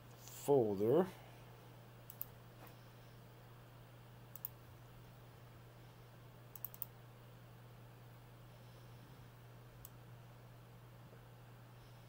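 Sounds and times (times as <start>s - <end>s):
steady low hum: 0.0s - 12.0s
computer mouse clicks: 2.1s - 2.4s, 4.3s - 4.6s, 6.5s - 6.9s.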